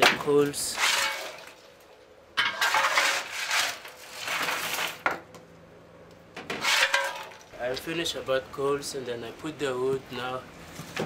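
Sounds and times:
coal lumps clattering: 0:00.0 - 0:05.2, 0:06.4 - 0:08.2
shovel scraping steel plate: 0:00.6 - 0:01.5, 0:02.4 - 0:05.0, 0:06.5 - 0:07.4.

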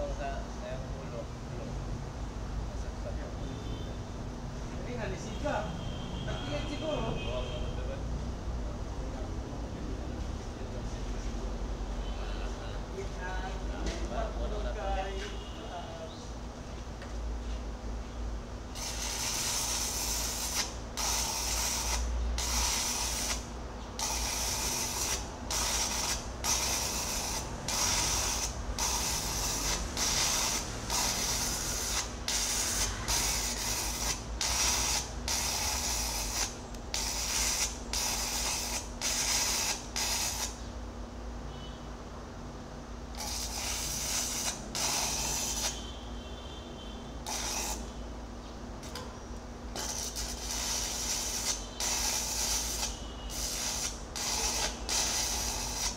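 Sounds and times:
electrical hum: 0:01.2 - 0:55.9
welding arc crackling and hissing: 0:18.7 - 0:40.6, 0:43.2 - 0:45.8, 0:47.2 - 0:47.9, 0:49.7 - 0:55.9.

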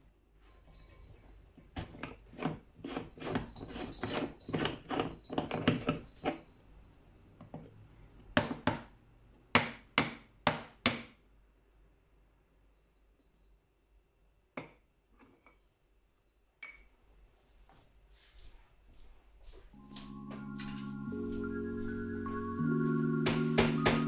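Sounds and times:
sharp metal knocks: 0:23.3 - 0:24.0.

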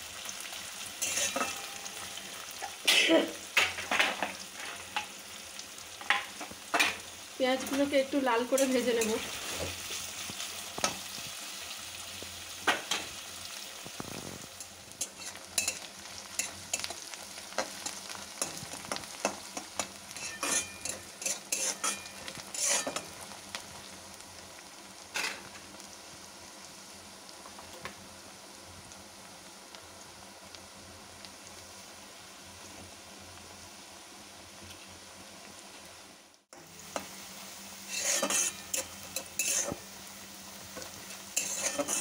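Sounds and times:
onions sizzling in hot oil: 0:00.0 - 0:42.0
spatula scraping pan: 0:01.0 - 0:02.0, 0:14.1 - 0:23.2, 0:37.8 - 0:39.9, 0:40.8 - 0:42.0.

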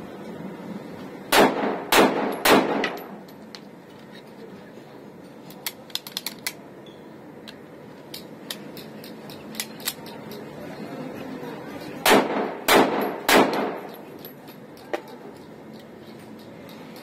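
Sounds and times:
pistol shots with echo: 0:01.3 - 0:03.1, 0:12.0 - 0:13.9.

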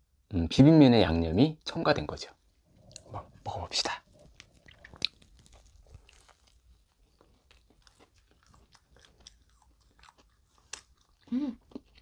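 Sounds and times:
crunching and chewing food: 0:04.1 - 0:12.0.

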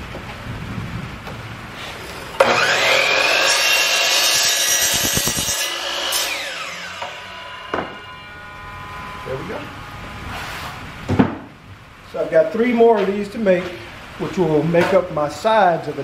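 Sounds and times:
miter saw whining: 0:01.8 - 0:11.1.

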